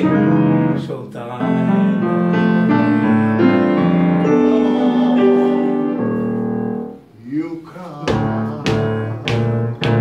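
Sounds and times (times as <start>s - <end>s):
grand piano melody: 0.0s - 10.0s.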